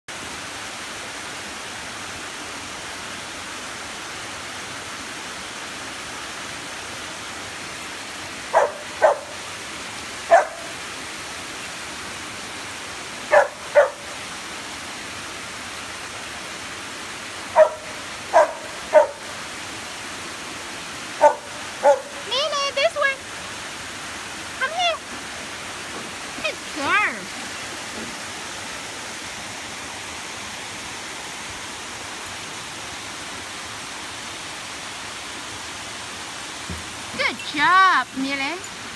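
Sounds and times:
creek and small waterfall rushing: 0.0 - 38.9
dog barking: 8.5 - 9.4, 10.3 - 10.8, 13.3 - 14.2, 17.5 - 19.3, 21.2 - 22.2.

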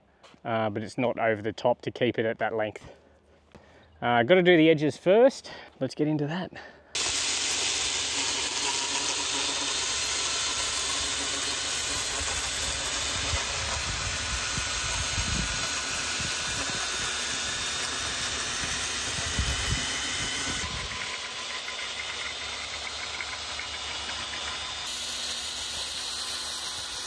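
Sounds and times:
rotary edger cutting grass hiss: 7.0 - 27.0.

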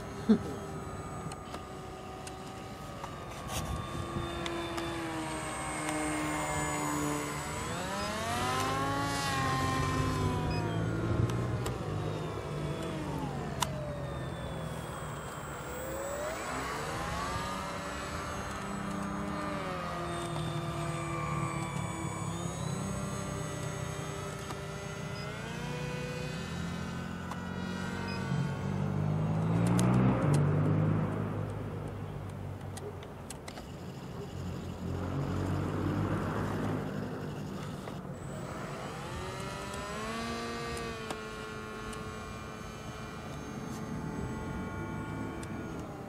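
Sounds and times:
model airplane motor whining: 0.0 - 46.0.

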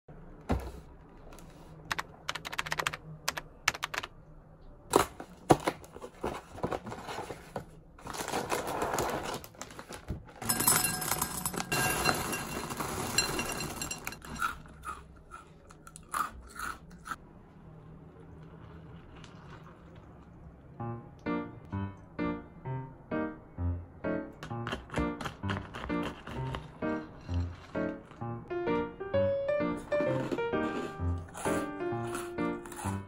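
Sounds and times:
cereal pouring into glass bowl: 10.4 - 14.5.

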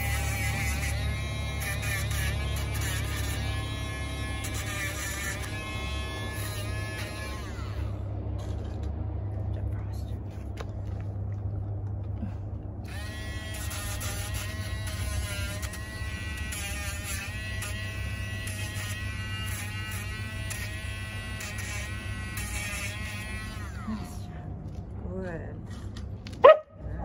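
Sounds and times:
rotary nail grinder whine: 0.0 - 8.8, 12.8 - 24.3.

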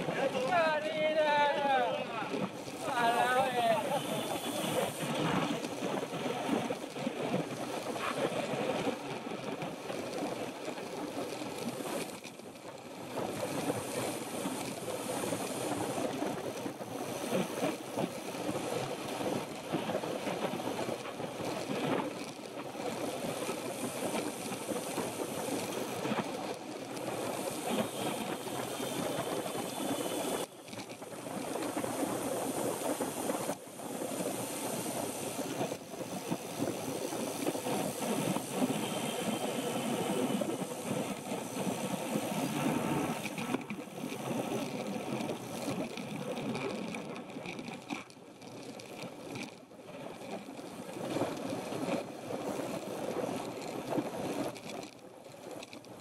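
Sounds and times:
tyre and road noise: 0.0 - 56.0.

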